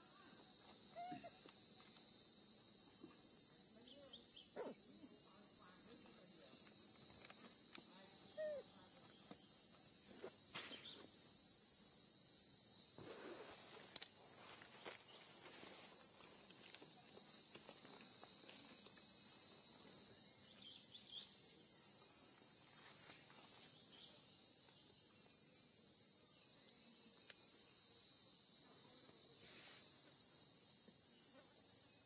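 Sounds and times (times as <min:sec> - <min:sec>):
insects chorus shrill drone: 0:00.0 - 0:02.8, 0:03.6 - 0:13.6, 0:18.1 - 0:24.6.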